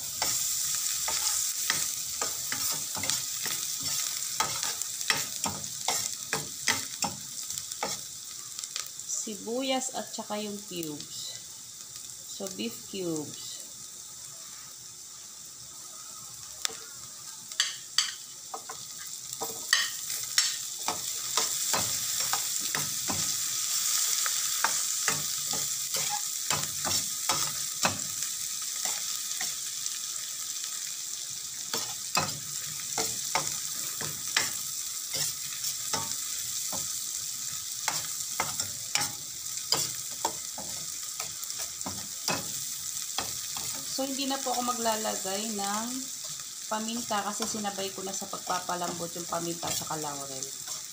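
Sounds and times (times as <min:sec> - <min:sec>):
onion sizzling in a pan: 0:00.0 - 0:50.9.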